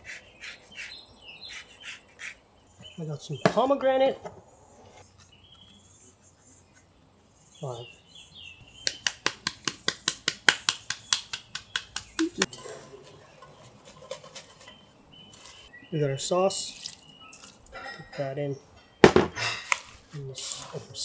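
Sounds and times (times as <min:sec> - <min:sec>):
faint bird chirps: 0:05.0 - 0:09.0, 0:14.6 - 0:19.6
hand slapping pomegranate: 0:08.8 - 0:12.5.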